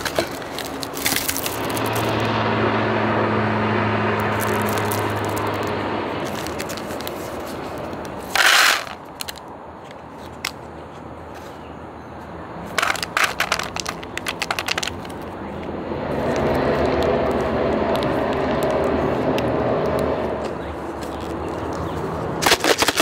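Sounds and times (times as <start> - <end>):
foil packet crinkling: 0.0 - 2.2, 4.3 - 9.4, 22.4 - 23.0
foil packet ripping open: 0.0 - 2.2, 4.3 - 5.7, 22.4 - 23.0.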